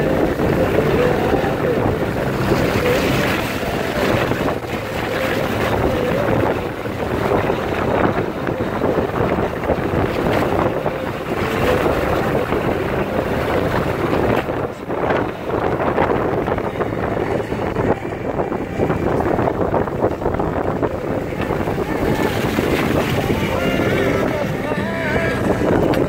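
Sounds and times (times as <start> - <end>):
vehicle running noise: 0.0 - 26.0
wind rushing on microphone: 0.0 - 26.0.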